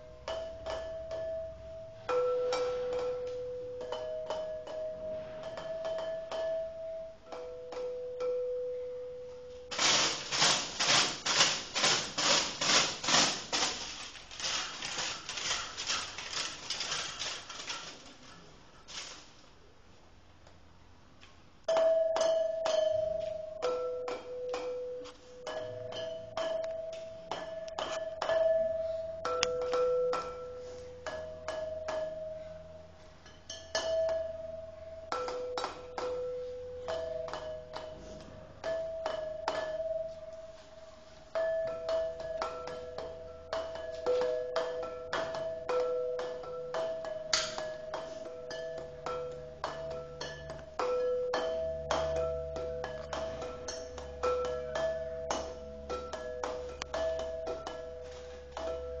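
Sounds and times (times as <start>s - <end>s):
slow bell-like tones: 0.0s - 9.8s, 21.7s - 59.0s.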